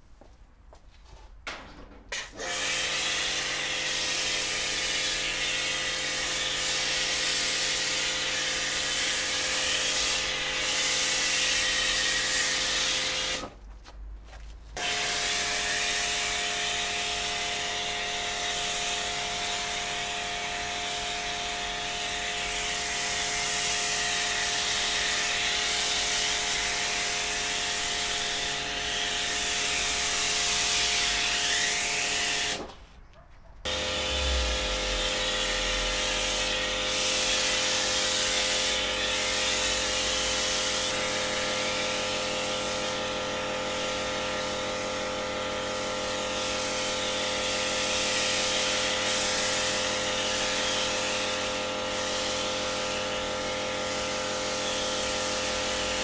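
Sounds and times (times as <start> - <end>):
power tool motor running: 33.7 - 56.0.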